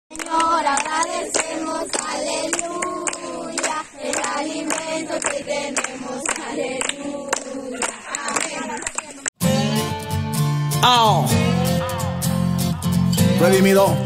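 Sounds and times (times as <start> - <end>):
group of people singing: 0.1 - 9.3, 13.1 - 14.0
people clapping in time: 0.1 - 9.4.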